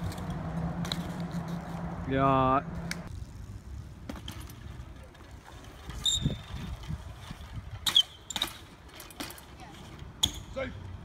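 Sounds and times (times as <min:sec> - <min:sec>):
bike tyre rumble on concrete: 0:00.0 - 0:11.0
brief high squeak: 0:06.0 - 0:06.4.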